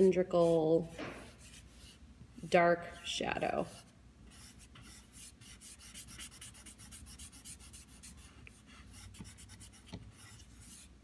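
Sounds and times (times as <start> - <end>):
charcoal scratching on paper: 0.0 - 10.9.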